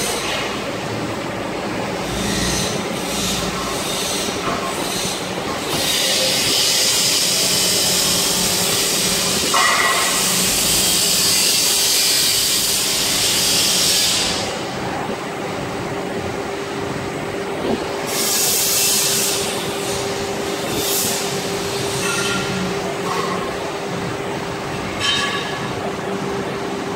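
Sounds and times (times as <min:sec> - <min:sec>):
loud high hiss: 0:18.0 - 0:21.9.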